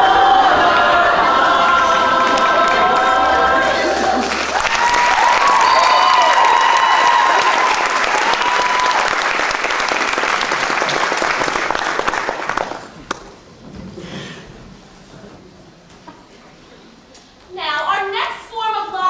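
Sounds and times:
audience applauding: 2.2s - 13.3s.

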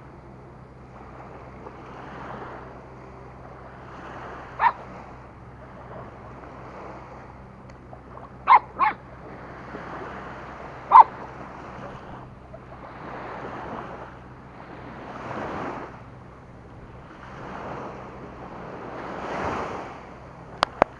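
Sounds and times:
surf washing: 0.0s - 20.9s
puppies barking: 4.5s - 4.9s, 7.9s - 9.1s, 10.8s - 11.4s.

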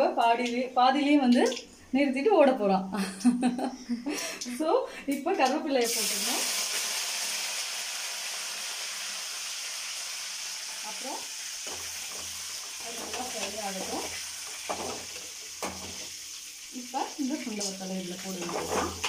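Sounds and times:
spices sizzling in hot oil: 5.7s - 19.0s.

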